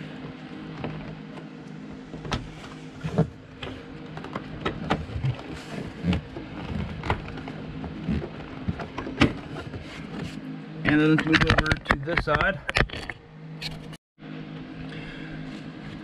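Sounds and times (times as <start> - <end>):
steady low hum: 0.0 - 16.0
wire and plastic clicking: 10.9 - 13.8.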